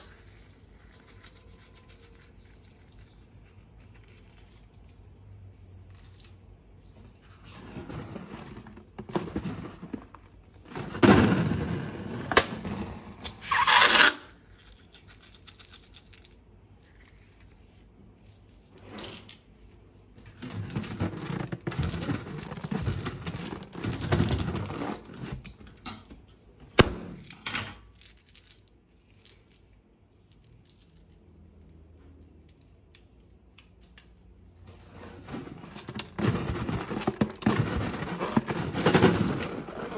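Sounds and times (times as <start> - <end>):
scraping: 6.8 - 15.1, 20.2 - 25.6, 34.7 - 39.9.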